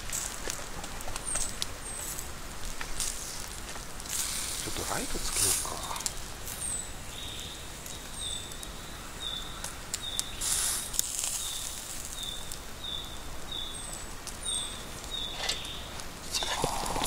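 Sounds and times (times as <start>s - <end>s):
crackles: 0.0s - 17.0s
meat sizzling over charcoal: 0.0s - 17.0s
short hiss: 4.1s - 6.1s, 10.4s - 11.3s.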